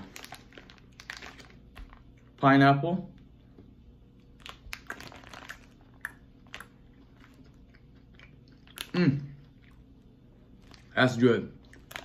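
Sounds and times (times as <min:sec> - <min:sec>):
mouth chewing wet clicks: 0:04.2 - 0:11.0, 0:11.6 - 0:12.0.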